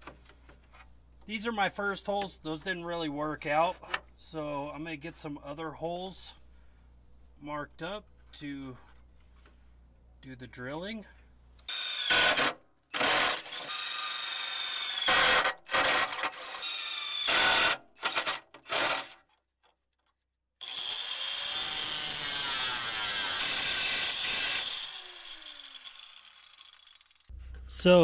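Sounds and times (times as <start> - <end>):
cordless drill drilling steel: 11.7 - 19.2, 20.6 - 27.3
angle grinder cutting steel: 20.6 - 27.3.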